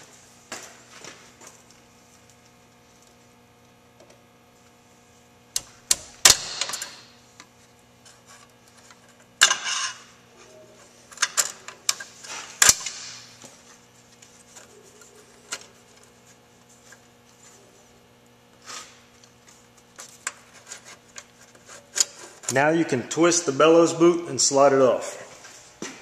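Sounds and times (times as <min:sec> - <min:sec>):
tool rattling scrapes: 0:18.6 - 0:22.7.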